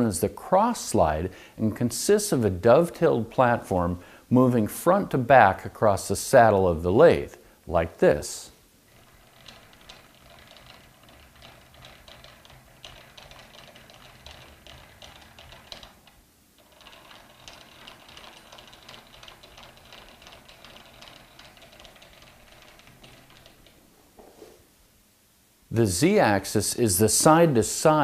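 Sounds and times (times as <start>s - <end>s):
lathe handwheel clicking: 8.9s - 23.8s.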